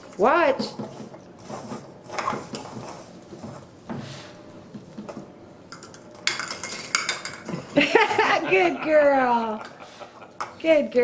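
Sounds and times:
plastic cups clattering: 5.7s - 7.8s.

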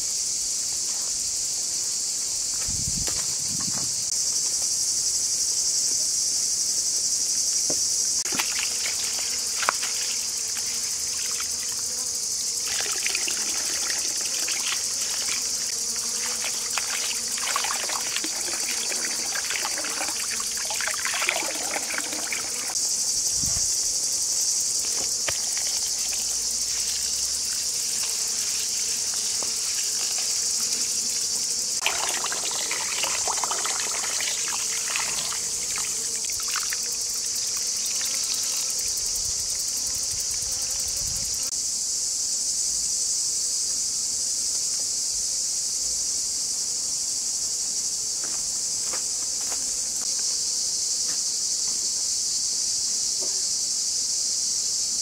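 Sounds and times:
insects chorus: 0.0s - 55.0s
water splashing: 8.3s - 10.2s, 12.7s - 15.5s, 16.2s - 22.8s, 31.8s - 36.7s
hands swishing rice in water: 12.7s - 15.4s, 16.2s - 22.7s, 31.8s - 35.9s.

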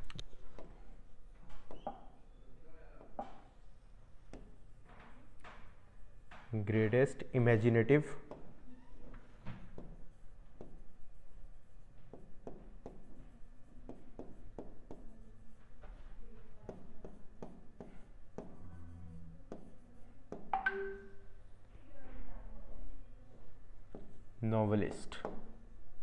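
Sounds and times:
pen tapping on a screen: 0.0s - 0.8s, 1.5s - 2.1s, 3.0s - 3.5s, 4.2s - 4.6s, 8.2s - 8.6s, 9.4s - 10.9s, 12.0s - 13.1s, 13.9s - 15.2s, 16.6s - 18.6s, 19.5s - 21.2s.

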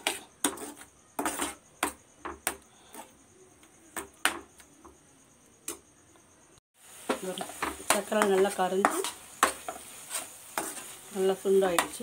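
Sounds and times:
metal spoon scraping steel pan: 0.0s - 2.0s, 7.4s - 12.0s.

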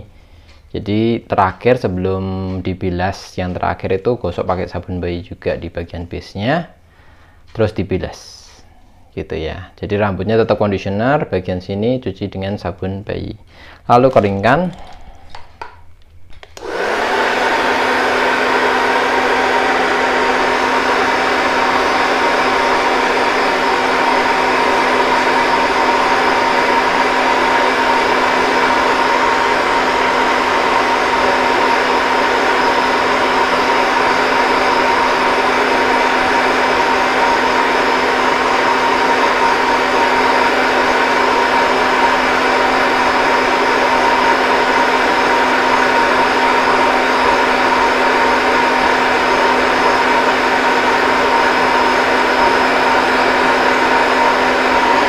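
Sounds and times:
hair dryer running: 16.4s - 55.0s.

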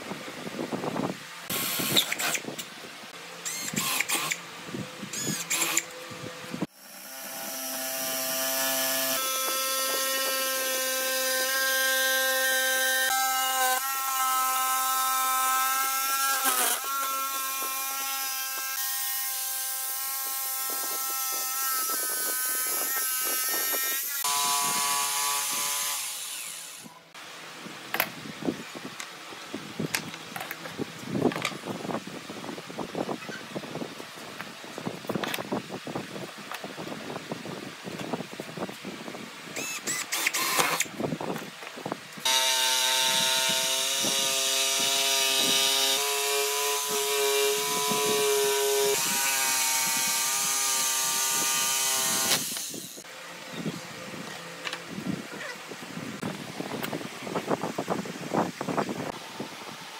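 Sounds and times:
jigsaw cutting wood: 3.5s - 4.4s, 5.2s - 5.9s, 6.6s - 26.9s, 39.6s - 40.9s, 42.2s - 53.0s.

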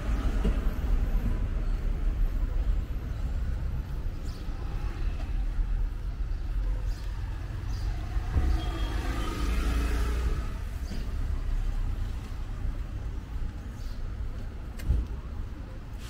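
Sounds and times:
low traffic rumble: 0.0s - 16.0s
vehicle engine passing: 7.3s - 12.2s.

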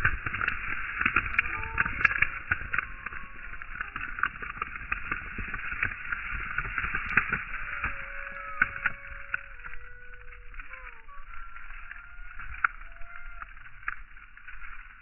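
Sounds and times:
hissy crackling background noise: 0.0s - 15.0s
faint gull calls: 1.3s - 4.2s, 7.6s - 13.8s.

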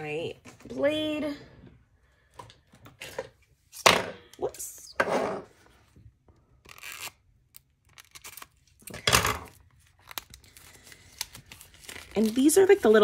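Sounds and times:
plastic packaging crinkling: 6.7s - 13.0s.

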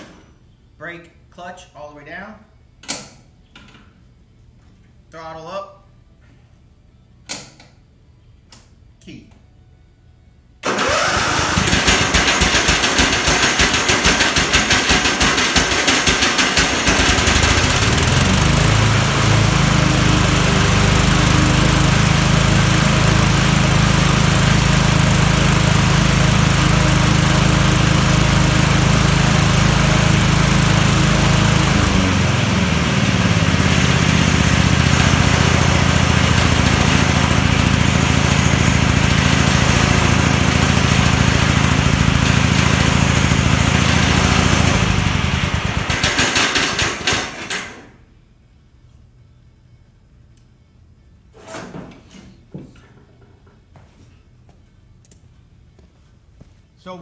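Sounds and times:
riding mower engine running: 10.6s - 48.0s.

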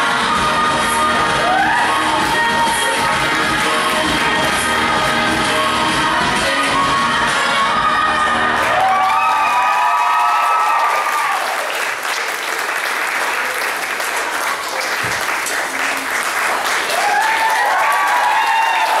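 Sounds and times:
high whooping cheers: 8.6s - 11.8s, 16.9s - 19.0s
audience applauding: 8.6s - 19.0s.

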